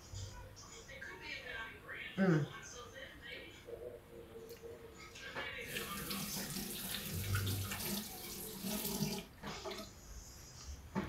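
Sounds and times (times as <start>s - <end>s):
tap water splashing into sink: 5.7s - 9.9s.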